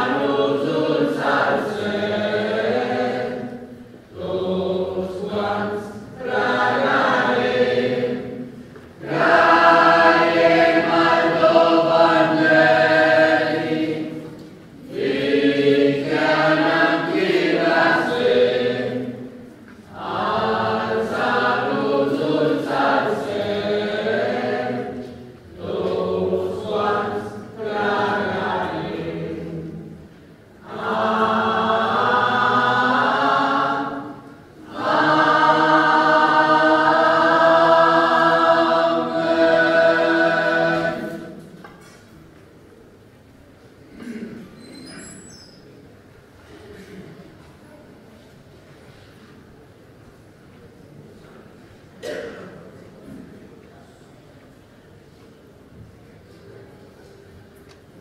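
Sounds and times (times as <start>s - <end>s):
church choir singing a hymn: 0.0s - 41.9s.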